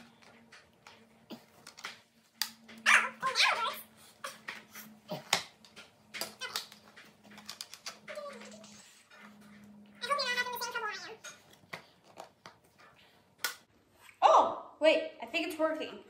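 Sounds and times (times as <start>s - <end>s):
plastic pieces clicking and knocking: 5.2s - 8.6s.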